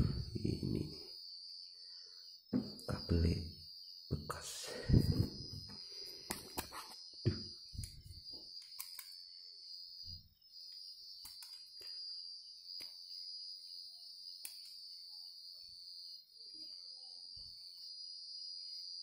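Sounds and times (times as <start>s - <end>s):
high-pitched insect trilling: 0.0s - 19.0s
scissors clicking on wire: 8.6s - 9.2s, 11.2s - 11.6s, 14.4s - 14.8s.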